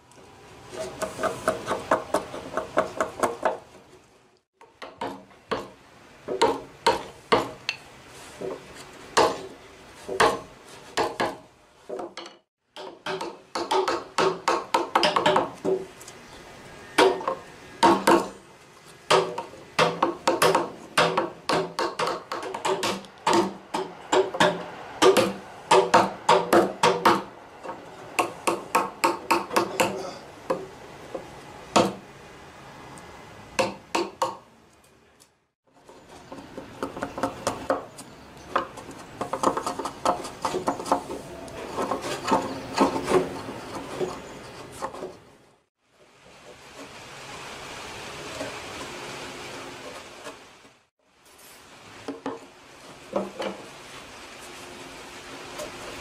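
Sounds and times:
hammer striking chisel into wood: 0:12.8 - 0:15.5, 0:19.1 - 0:27.3, 0:28.2 - 0:30.7, 0:33.6 - 0:34.4.

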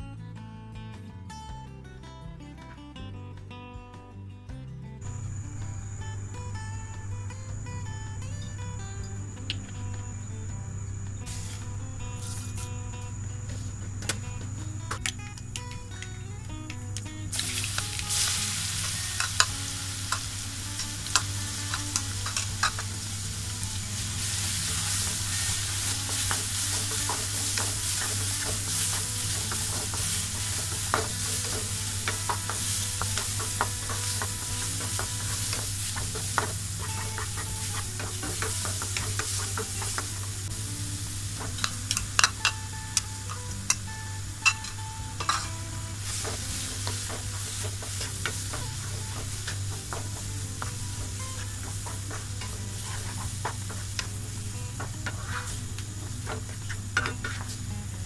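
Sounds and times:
ginger and garlic frying in oil: 0:05.0 - 0:58.0
wooden spatula scraping a pan: 0:17.4 - 0:40.4, 0:45.2 - 0:57.6.

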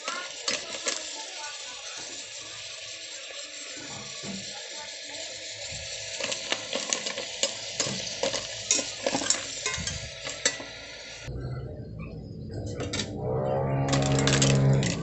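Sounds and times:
oil sizzling: 0:00.0 - 0:11.3, 0:12.7 - 0:15.0
shells clacking in metal pot: 0:06.1 - 0:10.8.

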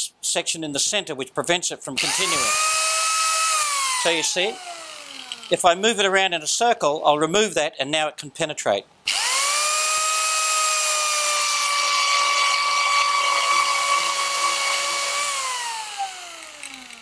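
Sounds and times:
angle grinder whining: 0:02.0 - 0:05.7, 0:09.1 - 0:17.0.

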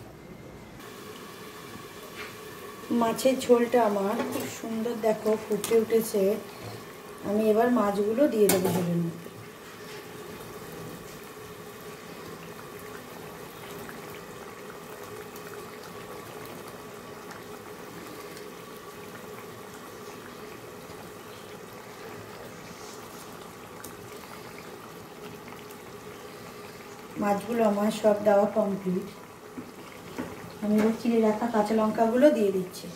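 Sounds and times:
faint steady hum: 0:00.0 - 0:32.9
curry boiling and bubbling: 0:00.7 - 0:32.9.

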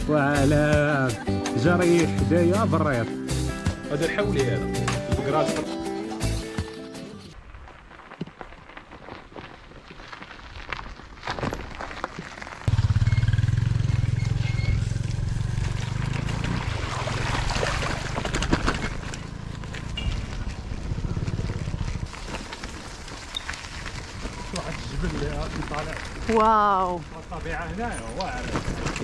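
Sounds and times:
bicycle rattles and clicks: 0:07.4 - 0:29.0
wind rumbling on microphone: 0:16.4 - 0:29.0.

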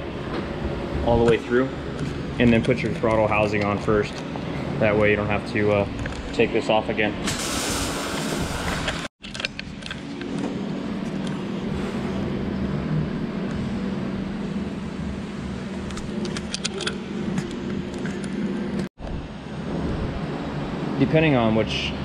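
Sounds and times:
low machine hum: 0:00.0 - 0:08.8, 0:09.5 - 0:22.0
plastic housing clicking and rattling: 0:09.2 - 0:10.0.

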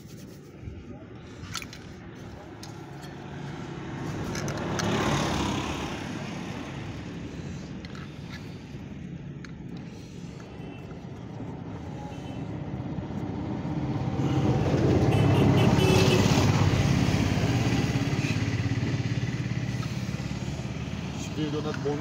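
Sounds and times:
vehicle engine passing by: 0:03.1 - 0:08.2, 0:11.6 - 0:22.0.

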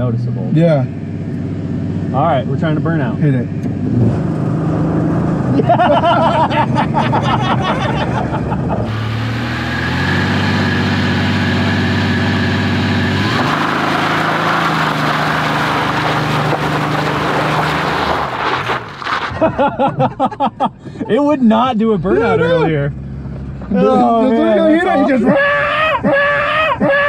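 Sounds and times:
engine at high revs: 0:01.0 - 0:19.2.

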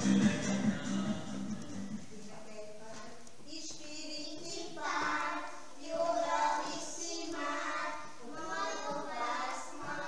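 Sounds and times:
young children singing: 0:03.5 - 0:10.0.

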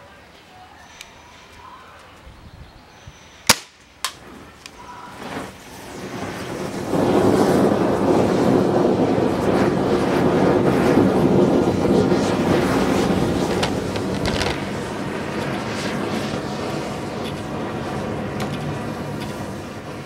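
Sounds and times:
air rifle shot: 0:03.4 - 0:04.2
sharp crack: 0:03.4 - 0:06.6
battery venting gas jet: 0:03.5 - 0:20.0.

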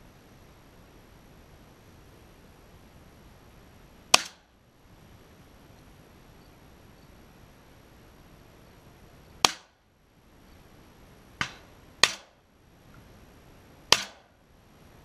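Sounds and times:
shotgun shots: 0:04.1 - 0:04.5, 0:09.4 - 0:09.8, 0:11.4 - 0:12.4, 0:13.9 - 0:14.3.

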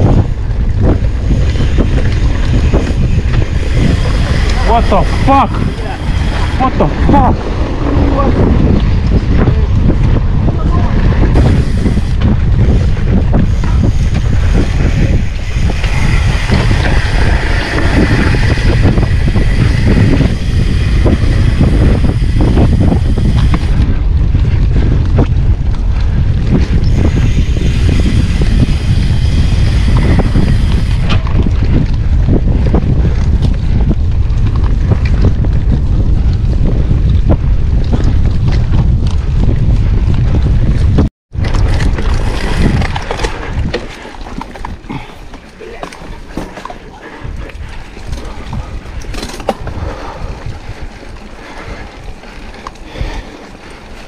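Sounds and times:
bike rattling over rough ground: 0:00.0 - 0:54.0
wind buffeting microphone: 0:00.0 - 0:54.0.

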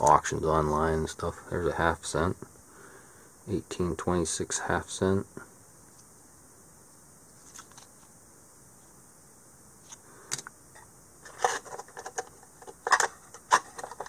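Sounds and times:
coin holders clicking and rattling: 0:11.3 - 0:14.0.

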